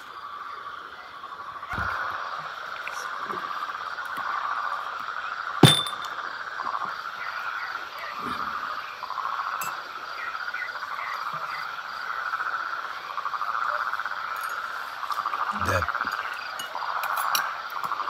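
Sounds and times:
frogs calling: 0.0s - 18.0s
tableware clink: 5.6s - 6.2s.

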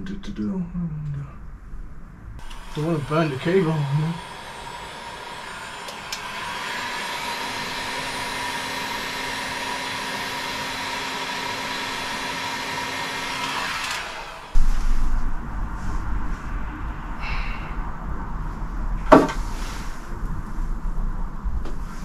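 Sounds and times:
heat gun blowing: 2.4s - 15.0s
heat gun switch click: 5.8s - 6.3s.

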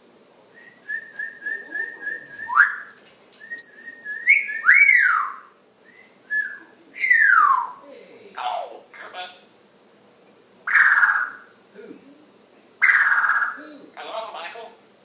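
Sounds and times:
parrot whistling: 0.6s - 7.8s, 10.7s - 11.5s, 12.8s - 13.6s.

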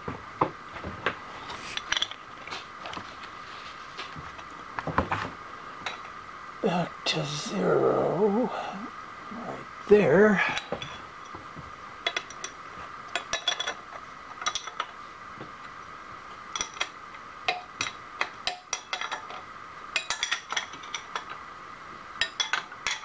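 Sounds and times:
machine hum: 0.0s - 23.0s
metal tools clinking on steel: 12.0s - 14.9s, 17.5s - 19.4s, 20.0s - 21.4s, 22.2s - 23.0s.

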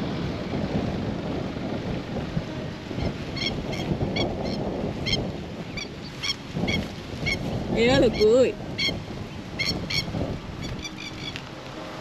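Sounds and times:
wind buffeting microphone: 0.0s - 12.0s
high chirping calls: 3.0s - 11.4s
wavering honk-like call: 3.4s - 5.2s, 9.6s - 10.1s, 10.7s - 11.4s.

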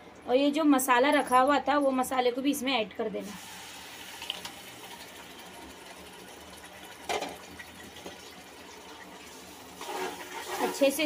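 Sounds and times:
paste sizzling in hot oil: 9.8s - 11.0s.

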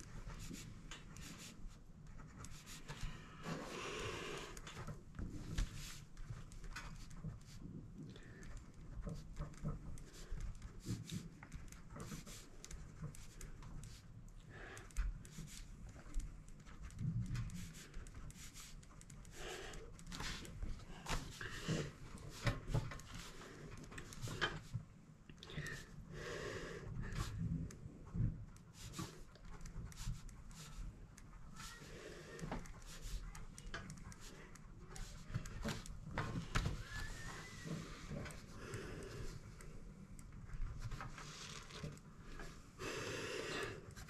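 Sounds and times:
pen writing on paper: 0.1s - 3.7s, 9.1s - 14.0s, 15.2s - 15.7s, 16.7s - 23.4s, 28.6s - 30.9s, 31.6s - 36.5s.

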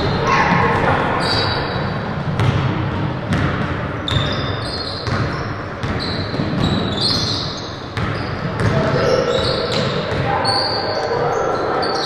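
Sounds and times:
basketball bouncing on hardwood floor: 2.3s - 4.4s, 5.0s - 7.2s
short high shoe squeaks: 4.1s - 8.4s.

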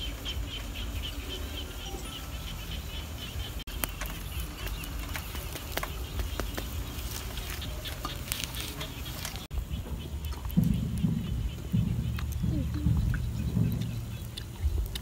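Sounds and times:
wood fire crackling: 2.4s - 15.0s.

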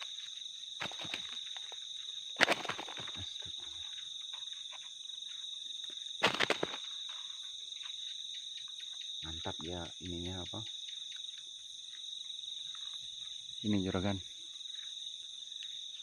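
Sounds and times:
night insects chirring: 0.0s - 16.0s
close rustling and knocking: 0.8s - 1.8s.

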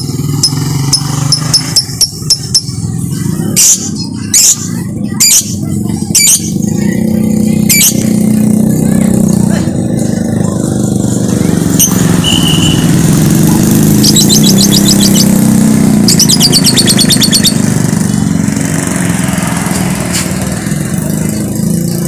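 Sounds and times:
motorcycle engines running: 0.0s - 22.0s
bird chattering trill: 0.3s - 7.0s, 7.6s - 8.1s, 11.7s - 17.8s
short high whistle: 12.2s - 12.9s.

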